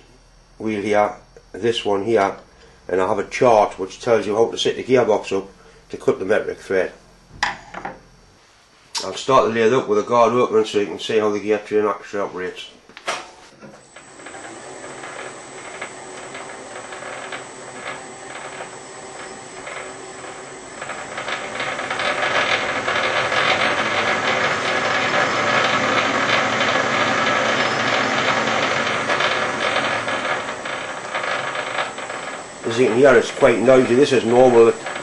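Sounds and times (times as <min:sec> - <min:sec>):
lathe gears rattling: 0:13.8 - 0:35.0.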